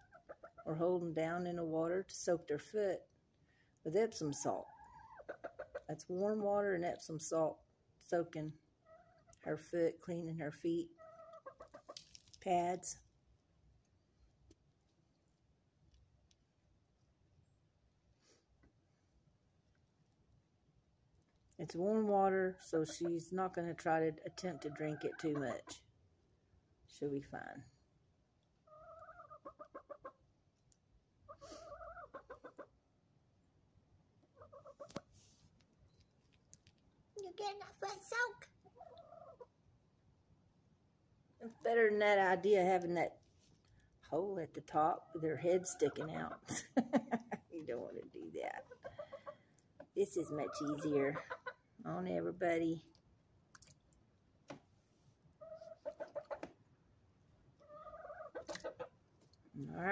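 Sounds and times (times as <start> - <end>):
hen clucking: 0.0 - 0.8, 4.2 - 5.9, 8.8 - 9.4, 10.9 - 12.0, 24.3 - 25.8, 28.6 - 30.3, 31.2 - 32.8, 34.2 - 35.1, 38.6 - 39.6, 45.0 - 46.6, 48.5 - 51.8, 55.4 - 56.6, 57.5 - 59.0.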